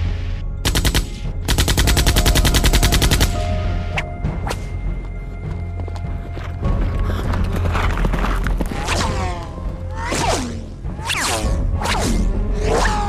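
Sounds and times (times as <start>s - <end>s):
machine-gun fire bursts: 0.6s - 3.4s.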